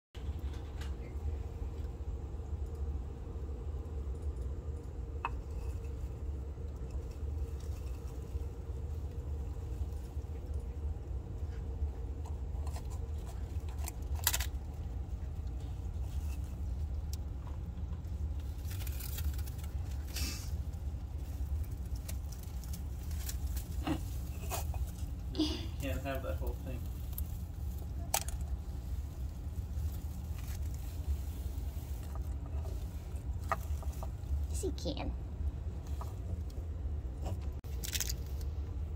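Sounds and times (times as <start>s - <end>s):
steady low hum: 0.2s - 38.9s
lizard crunching egg shell: 4.4s - 34.3s, 37.6s - 38.8s.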